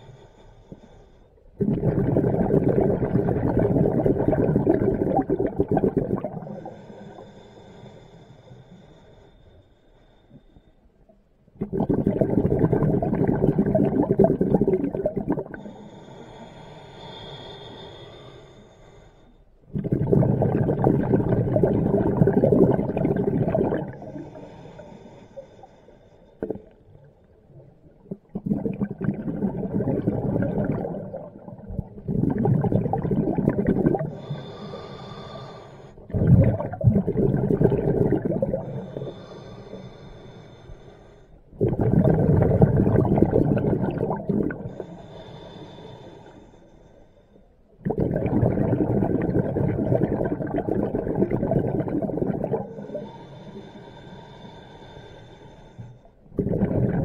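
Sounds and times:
bubbling regulator exhalations: 1.6s - 6.8s, 11.6s - 15.7s, 19.7s - 24.6s, 26.4s - 26.8s, 27.6s - 35.4s, 36.0s - 39.3s, 41.5s - 44.9s, 47.8s - 53.2s, 56.3s - 57.0s
regulator inhalations: 6.4s - 10.9s, 15.2s - 21.3s, 33.1s - 36.3s, 37.9s - 42.2s, 43.0s - 47.6s, 51.9s - 57.0s.

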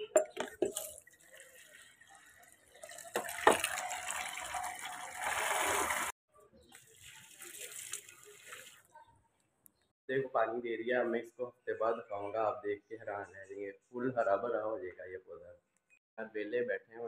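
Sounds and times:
water rushing into mug: 0.7s - 6.1s
water splashing onto soil: 0.7s - 6.1s, 6.7s - 8.9s.

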